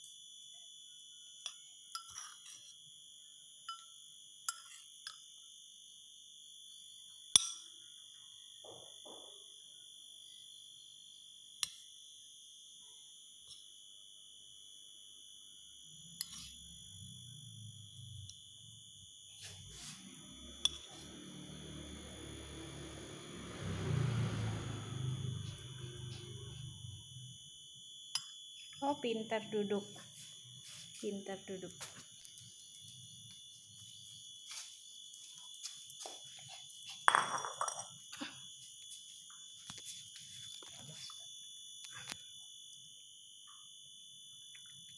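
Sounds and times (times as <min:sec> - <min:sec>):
metal spoon clinking bowl: 0:02.0 - 0:02.6, 0:04.5 - 0:05.2
high-pitched whine: 0:16.1 - 0:27.6.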